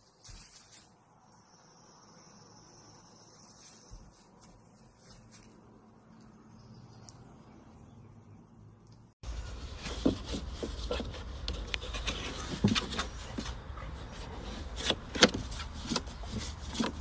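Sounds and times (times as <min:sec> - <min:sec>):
dog rubbing on wooden boards: 0:09.4 - 0:17.0.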